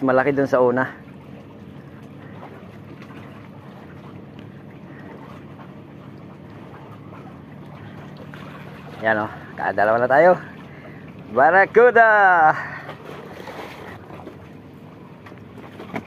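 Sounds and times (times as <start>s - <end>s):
outdoor background noise: 1.0s - 16.0s.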